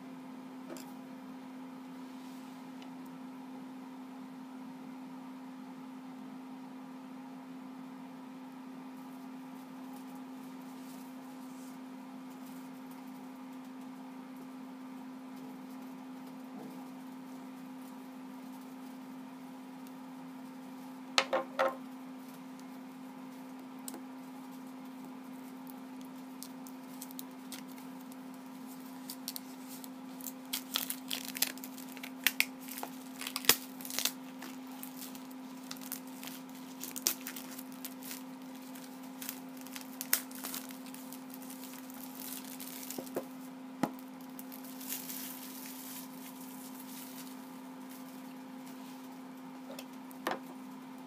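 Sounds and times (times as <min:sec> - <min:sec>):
plastic wrap crinkling: 0:21.3 - 0:51.0
plastic wrap snapping: 0:26.0 - 0:28.2, 0:28.8 - 0:48.2.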